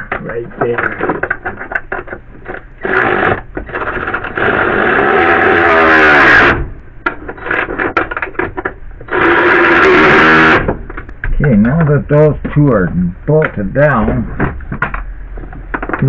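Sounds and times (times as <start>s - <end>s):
cordless power tool driving bolts: 2.8s - 6.6s, 9.1s - 10.8s.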